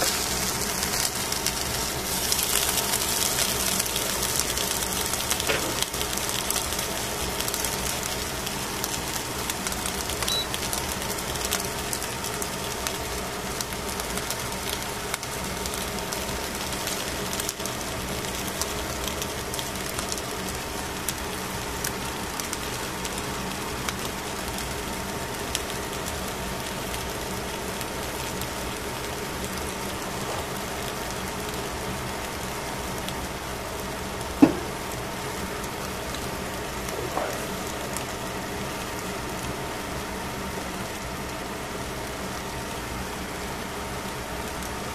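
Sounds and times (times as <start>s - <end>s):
sharp knock: 34.4s - 34.7s.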